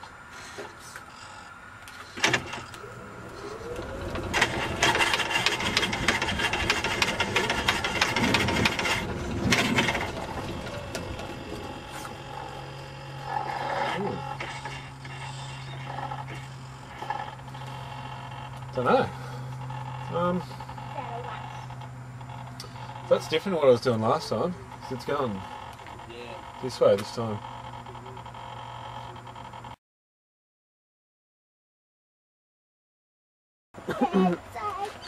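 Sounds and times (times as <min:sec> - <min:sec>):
steady low hum: 0:00.0 - 0:29.8
mechanical rattle: 0:02.1 - 0:23.6.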